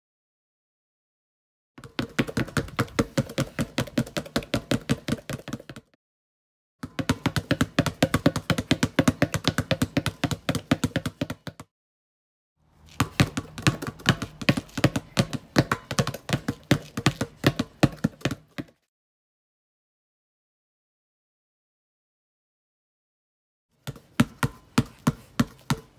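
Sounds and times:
basketball bouncing on concrete: 0:01.8 - 0:06.0, 0:06.8 - 0:11.7, 0:12.7 - 0:18.9, 0:23.8 - 0:25.9.

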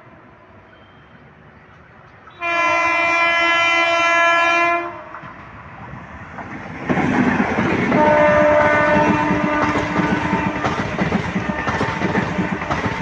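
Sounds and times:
train rushing past: 0:00.0 - 0:13.0
train horn blast: 0:02.3 - 0:05.2, 0:07.9 - 0:13.0.

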